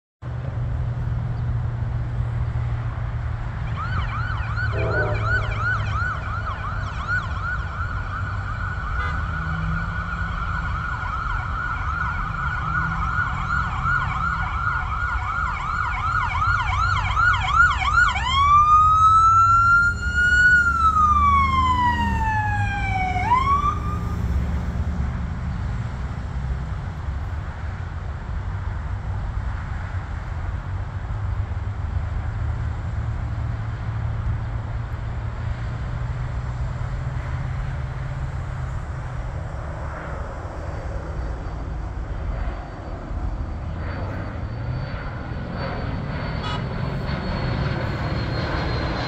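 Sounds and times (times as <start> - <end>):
steady low rumble: 0.2 - 7.7
emergency vehicle siren: 2.3 - 28.4, 32.0 - 49.0.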